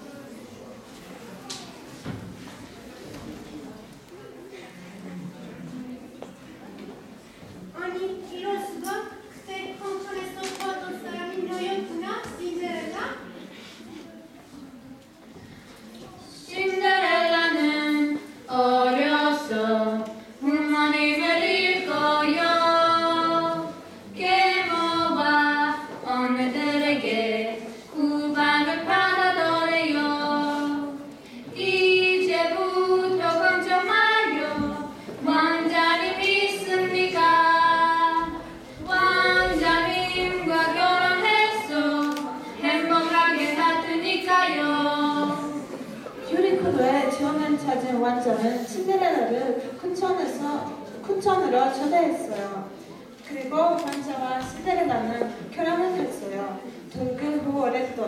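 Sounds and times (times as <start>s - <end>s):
women singing unaccompanied: 16.4s - 45.6s.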